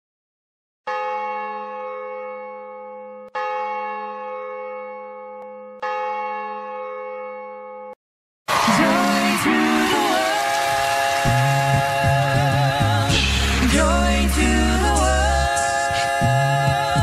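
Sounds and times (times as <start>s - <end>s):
church bell ringing: 0.9s - 8.0s
music: 8.6s - 17.0s.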